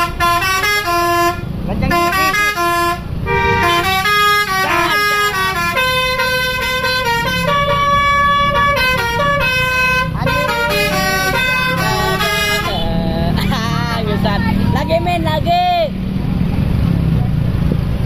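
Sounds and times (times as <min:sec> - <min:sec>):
bus horn playing a tune: 0:00.0 - 0:13.5
bus engine running: 0:00.0 - 0:18.0.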